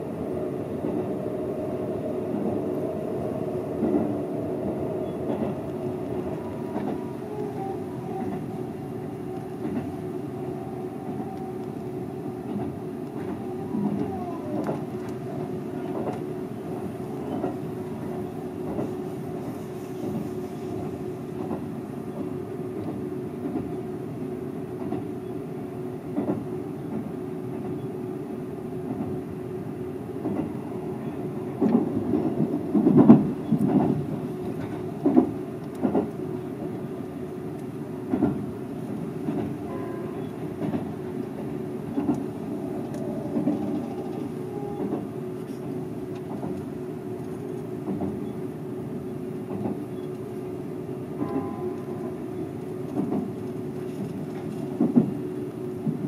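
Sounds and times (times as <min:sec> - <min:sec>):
electric train rumbling hum: 0:00.0 - 0:56.0
rail clicks: 0:00.7 - 0:23.8, 0:24.7 - 0:25.1, 0:26.1 - 0:27.9, 0:30.2 - 0:48.5, 0:49.4 - 0:50.5, 0:51.1 - 0:56.0
louder train knocks: 0:31.6 - 0:34.0, 0:43.1 - 0:45.1.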